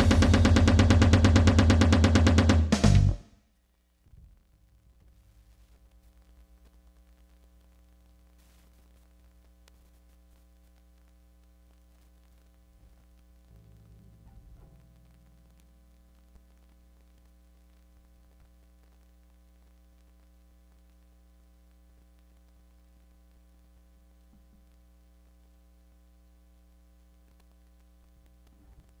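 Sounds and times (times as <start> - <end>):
amplifier mains hum: 0.0 - 29.0
faint click: 27.2 - 29.0.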